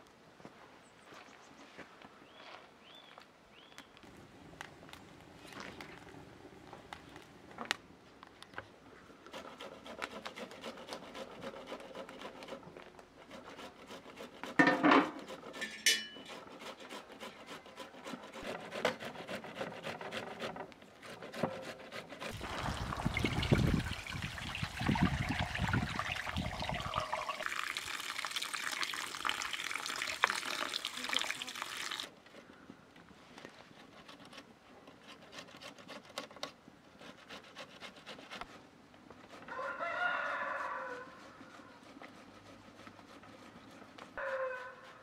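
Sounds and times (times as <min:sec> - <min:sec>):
water pouring into plastic basin: 0:22.3 - 0:32.1.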